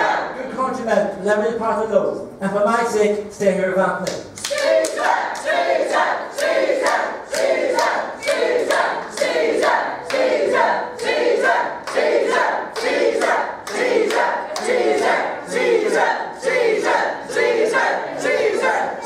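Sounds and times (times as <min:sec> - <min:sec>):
crowd chanting in unison: 0:00.0 - 0:00.5, 0:04.5 - 0:19.0
people clapping: 0:04.0 - 0:17.5.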